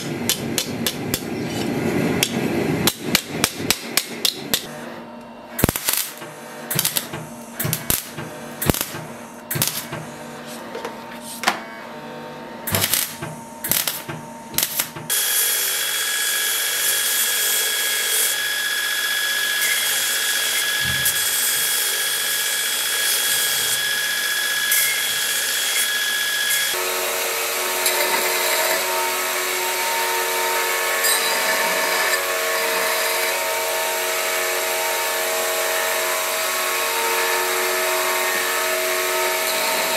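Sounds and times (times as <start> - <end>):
belt grinder grinding metal: 12.7 - 39.9.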